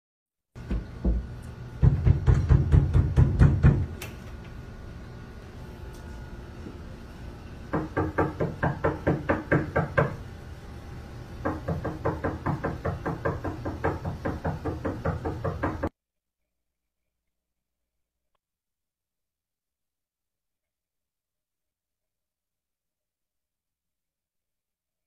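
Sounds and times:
rapid knocking on a door: 0.6s - 3.9s, 7.7s - 10.2s, 11.4s - 15.9s.

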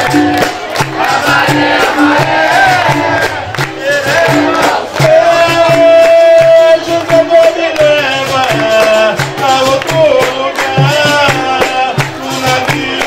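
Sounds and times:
hand drum beat: 0.0s - 13.0s
plucked string instrument: 0.0s - 13.0s.

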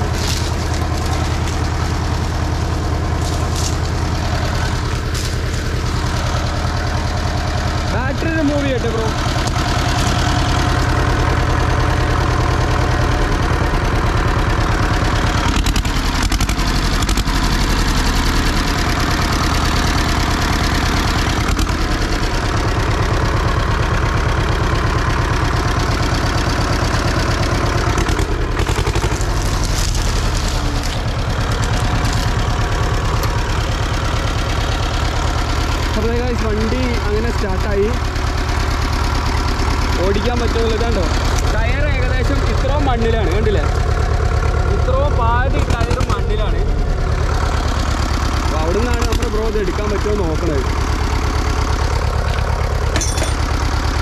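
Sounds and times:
tractor engine rumbling: 0.0s - 54.0s.

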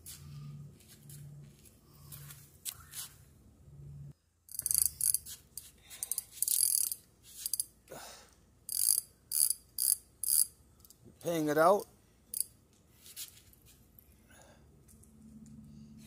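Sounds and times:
fishing reel ratcheting clicks: 4.5s - 7.7s, 8.7s - 11.0s.

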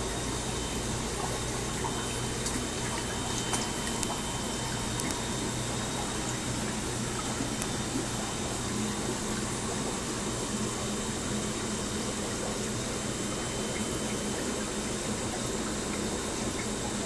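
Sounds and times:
aquarium water bubbling: 0.0s - 17.0s
low mechanical hum: 0.0s - 17.0s.

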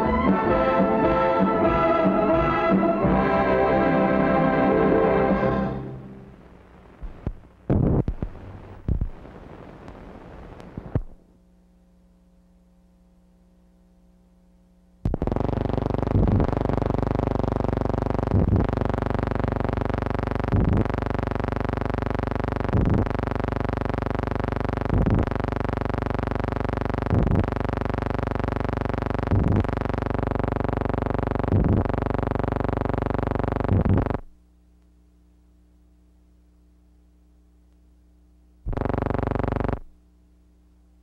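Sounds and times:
loud buzzing drone: 38.7s - 39.8s.

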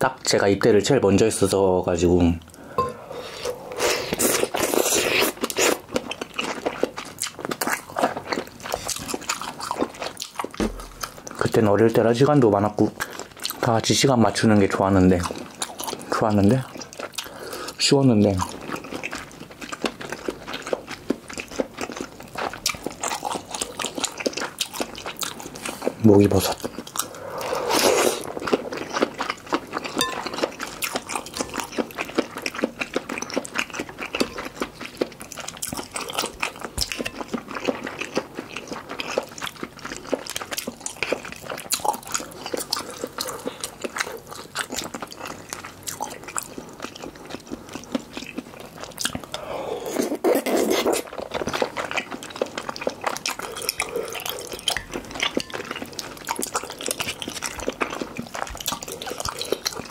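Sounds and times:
wet chewing and slurping: 2.5s - 11.7s, 12.6s - 59.9s
spoon and chopsticks tapping: 30.0s - 30.5s.

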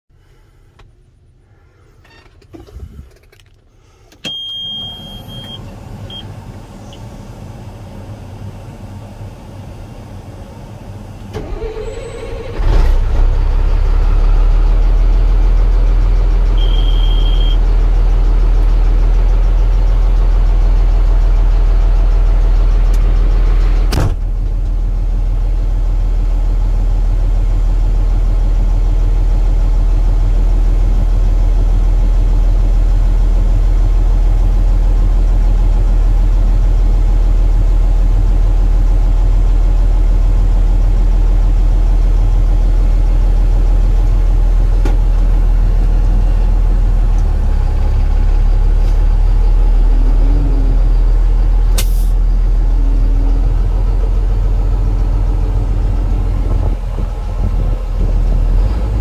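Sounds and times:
diesel engine idling: 0.2s - 59.0s
short beep: 4.2s - 6.3s, 16.6s - 17.6s
warning beep: 16.6s - 17.6s.

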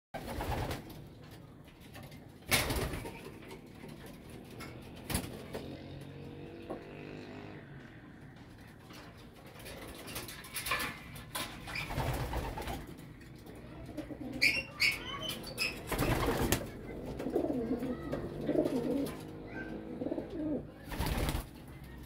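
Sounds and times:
pigeons cooing: 8.6s - 21.4s.

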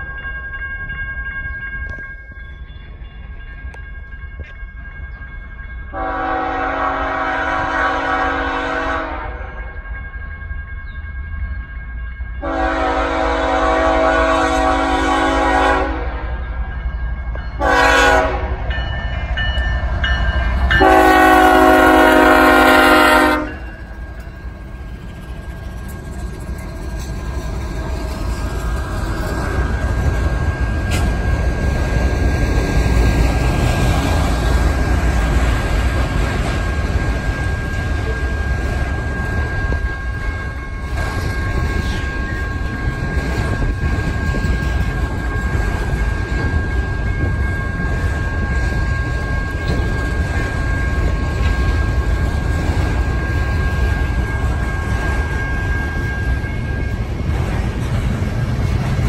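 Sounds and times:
crossing bells ringing: 0.0s - 59.0s
train rumbling past: 0.0s - 59.0s
locomotive horn blasts: 5.9s - 9.6s, 12.4s - 16.4s, 17.6s - 18.6s, 20.7s - 23.8s.

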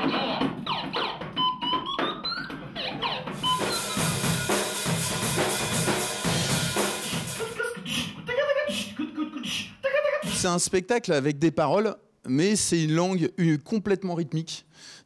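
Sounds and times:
drum kit playing fast: 3.0s - 8.2s
cymbals washing: 3.4s - 7.6s.

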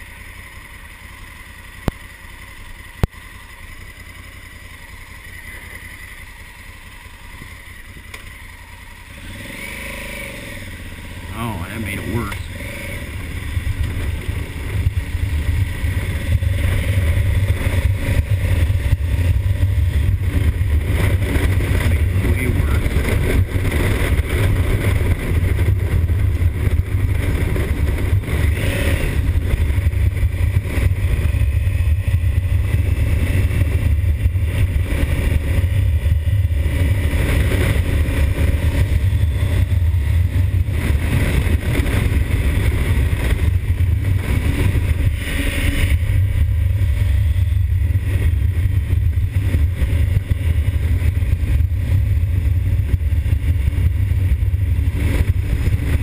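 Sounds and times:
motorcycle engine running: 0.0s - 56.0s
wind rumble on microphone: 13.0s - 56.0s.

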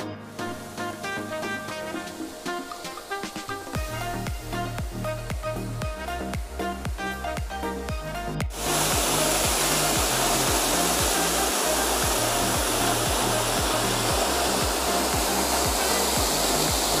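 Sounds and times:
music with bass beat: 0.0s - 17.0s
waterfall roaring: 0.4s - 4.7s, 8.5s - 17.0s.

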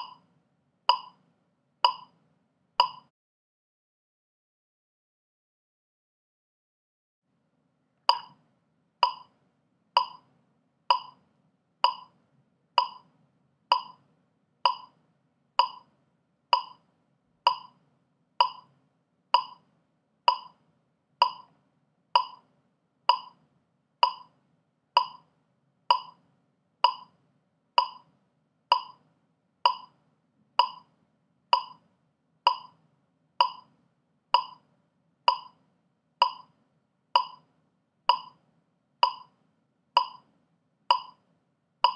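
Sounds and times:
metronome clicking: 0.0s - 0.2s, 0.9s - 1.2s, 1.9s - 2.1s, 2.8s - 3.1s, 8.1s - 8.4s, 9.0s - 9.3s, 10.0s - 10.2s, 10.9s - 11.2s, 11.8s - 12.1s, 12.8s - 13.1s, 13.7s - 14.0s, 14.7s - 14.9s, 15.6s - 15.8s, 16.6s - 16.8s, 17.5s - 17.7s, 18.4s - 18.7s, 19.4s - 19.6s, 20.3s - 20.5s, 21.2s - 21.5s, 22.2s - 22.4s, 23.1s - 23.4s, 24.0s - 24.3s, 25.0s - 25.2s, 25.9s - 26.2s, 26.8s - 27.1s, 27.8s - 28.0s, 28.7s - 29.0s, 29.7s - 29.9s, 30.6s - 30.9s, 31.6s - 31.8s, 32.5s - 32.8s, 33.4s - 33.7s, 34.4s - 34.6s, 35.3s - 35.6s, 36.2s - 36.5s, 37.2s - 37.4s, 38.1s - 38.4s, 39.0s - 39.3s, 40.0s - 40.2s, 40.9s - 41.2s.

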